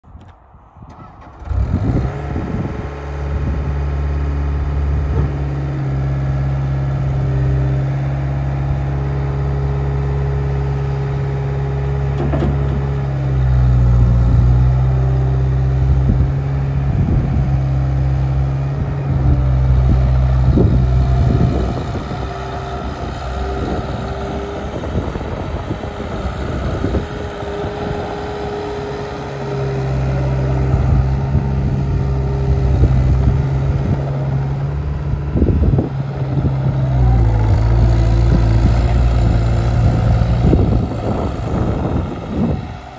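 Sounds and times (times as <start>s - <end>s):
diesel engine running: 0.1s - 42.9s
knocks and rattles: 12.2s - 13.0s.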